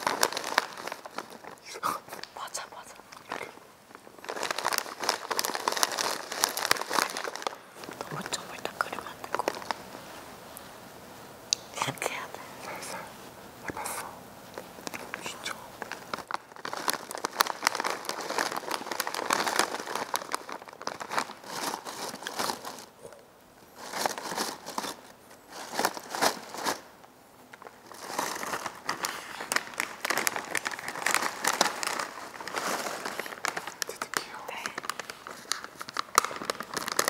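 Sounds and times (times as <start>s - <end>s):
plastic snack bag crinkling: 0.0s - 10.0s, 13.8s - 23.0s, 23.7s - 37.0s.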